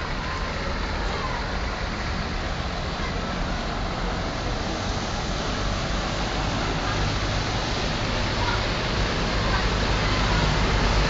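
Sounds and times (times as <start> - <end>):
road traffic: 0.0 - 11.0
water rushing: 0.0 - 11.0.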